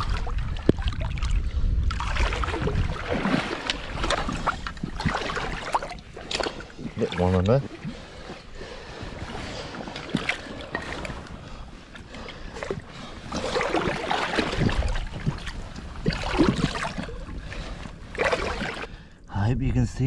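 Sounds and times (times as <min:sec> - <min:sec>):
seawater splashing and sloshing: 0:00.0 - 0:19.0.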